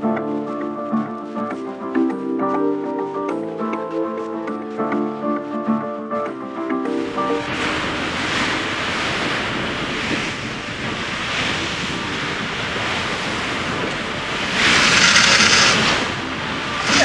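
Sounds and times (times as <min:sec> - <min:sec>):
wind buffeting microphone: 0:06.2 - 0:17.0
water rushing in boat wake: 0:07.0 - 0:17.0.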